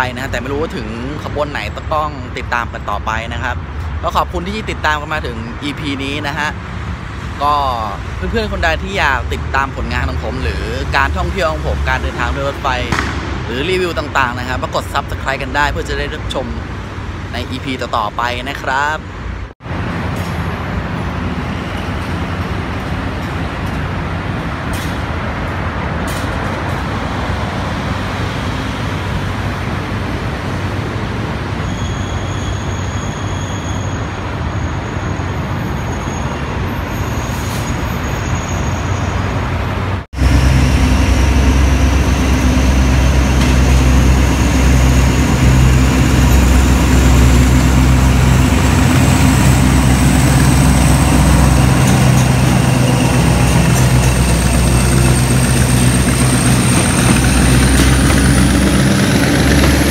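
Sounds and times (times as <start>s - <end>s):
diesel locomotive engine: 0.0s - 59.9s
high whine rising in pitch: 40.2s - 59.9s.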